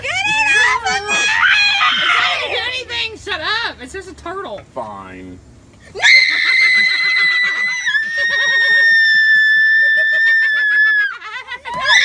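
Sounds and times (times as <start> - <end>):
girl screaming: 0.2 - 2.6, 6.0 - 11.2, 11.8 - 12.0
people laughing: 6.0 - 12.0.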